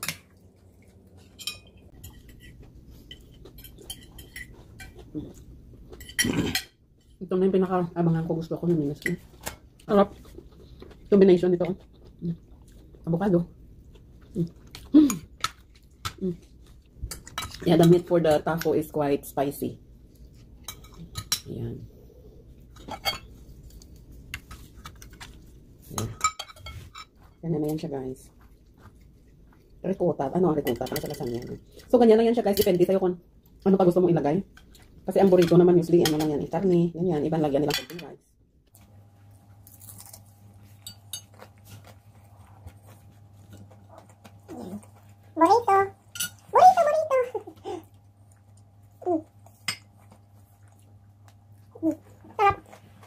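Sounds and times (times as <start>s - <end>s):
utensils clinking on plates: 1.2s - 5.0s.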